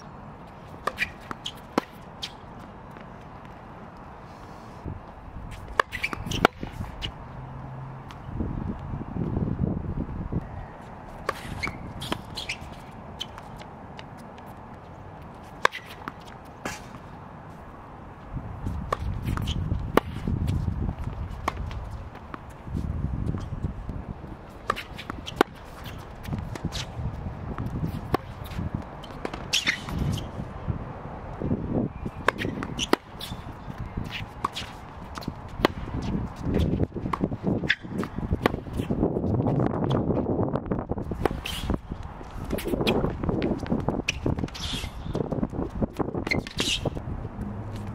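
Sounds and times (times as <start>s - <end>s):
shoes squeaking on hard court: 0.0s - 3.6s, 5.0s - 7.2s, 10.4s - 17.7s, 18.6s - 30.5s, 31.8s - 40.3s, 41.0s - 47.9s
tennis ball bounces: 0.7s - 3.6s, 5.1s - 8.3s, 11.1s - 17.1s, 18.7s - 22.6s, 23.3s - 30.4s, 32.1s - 39.0s
racket striking ball: 5.5s - 7.2s, 15.4s - 17.0s, 18.7s - 22.5s, 24.5s - 30.3s, 32.1s - 38.9s
shuffling footsteps: 32.4s - 47.9s.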